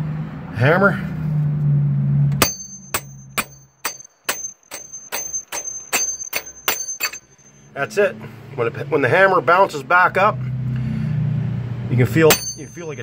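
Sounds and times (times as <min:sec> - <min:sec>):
hammer striking metal with ringing: 0:02.4 - 0:07.7, 0:12.3 - 0:13.0.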